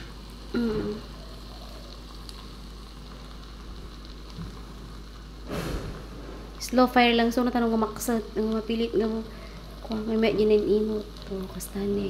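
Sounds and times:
food sizzling in a pan: 0.0 - 12.0
brief burst of noise: 5.5 - 6.6.

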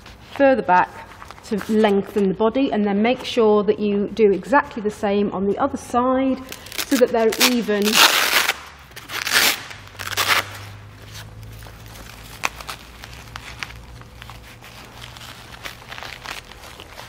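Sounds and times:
velcro ripping: 6.5 - 17.0
vest fabric rustling: 6.7 - 17.0.

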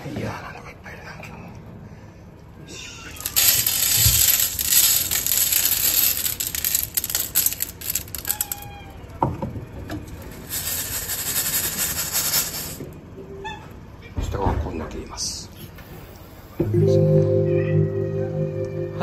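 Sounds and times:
rattling and clicking: 3.2 - 8.7, 10.0 - 13.0.

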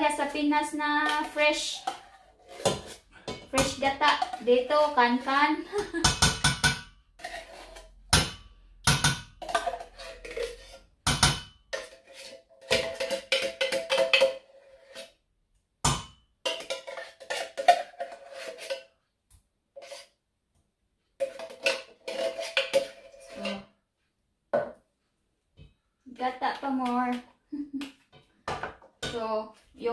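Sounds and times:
utensil scraping a tin can: 0.0 - 5.6, 7.2 - 8.1, 9.4 - 10.9, 11.7 - 15.2, 16.6 - 18.9, 19.8 - 20.2, 21.2 - 23.7.

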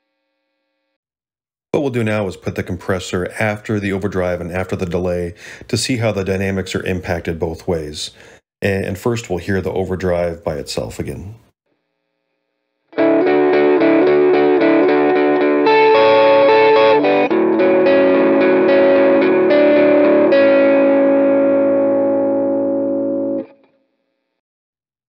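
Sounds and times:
overdriven electric guitar chords: 12.9 - 23.6.

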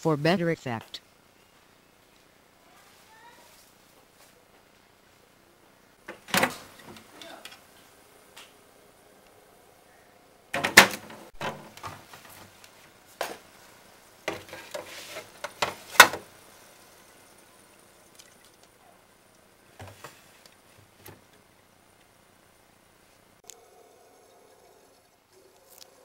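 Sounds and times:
knocks and clatters in fridge: 10.6 - 12.4.

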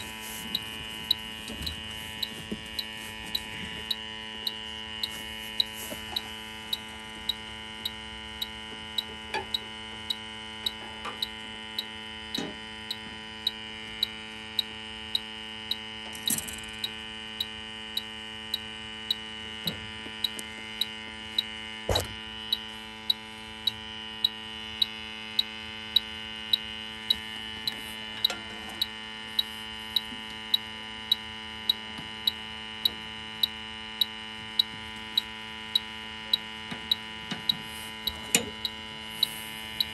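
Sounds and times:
leak detector ticking: 0.0 - 39.9
steady whine and hum: 0.0 - 39.9.

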